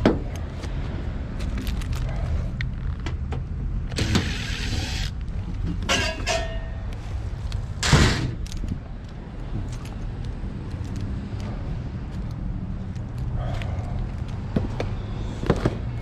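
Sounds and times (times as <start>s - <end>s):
impact driver whirring: 3.9s - 5.1s
steady low rumble: 6.7s - 15.3s.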